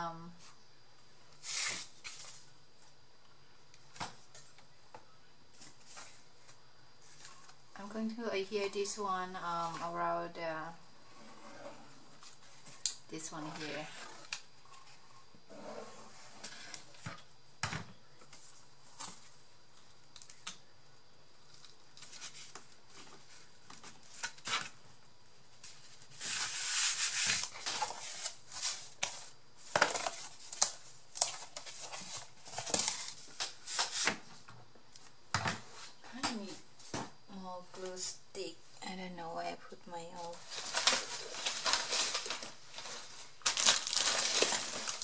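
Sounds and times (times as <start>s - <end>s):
cardboard rustling scrape: 26.1s - 30.5s, 40.4s - 45.0s.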